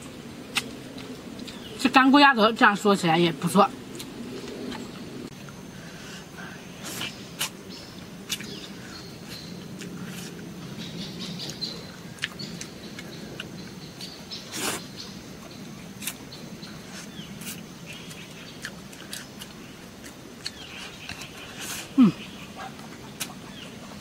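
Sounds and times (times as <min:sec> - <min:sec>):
faint birds chirping: 0:00.8 - 0:24.0
person chewing: 0:08.2 - 0:08.6, 0:12.2 - 0:13.6, 0:16.9 - 0:24.0.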